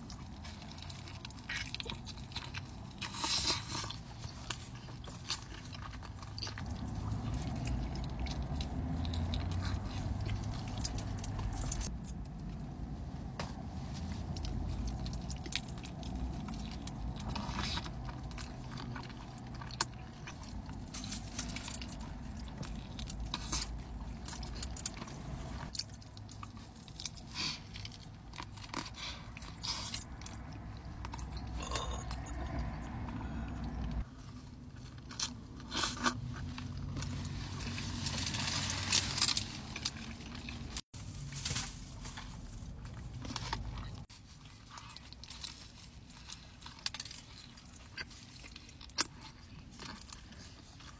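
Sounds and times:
person chewing food: 0.0s - 40.9s, 42.7s - 50.9s
low rumble: 29.4s - 35.0s.

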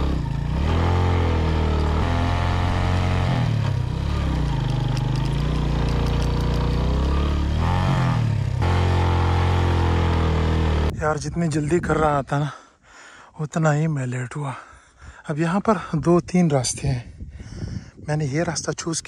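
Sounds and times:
motorcycle engine running: 0.0s - 10.9s.

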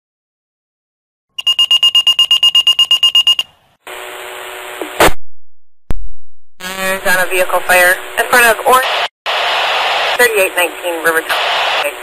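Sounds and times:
rapid high-pitched pager beeping: 1.4s - 3.5s
buzzing radio tone with hiss: 3.9s - 5.2s, 6.6s - 12.0s
loud radio crackle: 6.6s - 12.0s.

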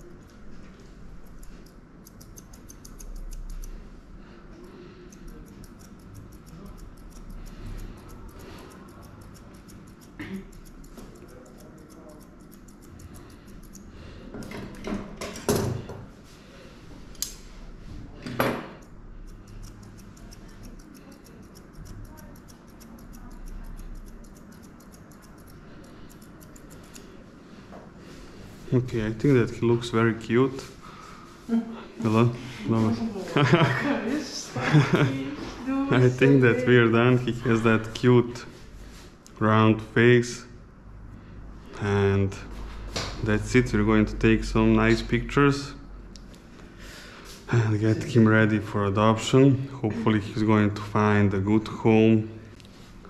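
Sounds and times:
scissors snipping hair: 1.2s - 3.8s, 4.5s - 14.0s, 17.1s - 17.4s, 18.7s - 27.2s.

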